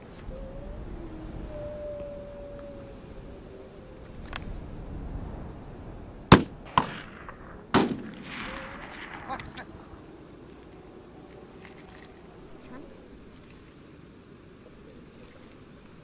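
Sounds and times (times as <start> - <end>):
rifle shots with echo: 6.3 - 10.0.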